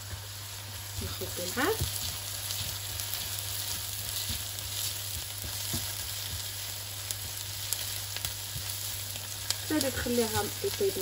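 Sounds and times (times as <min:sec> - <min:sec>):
onion sizzling in oil: 0:00.0 - 0:11.0
spatula tapping and scraping pan: 0:01.4 - 0:09.6.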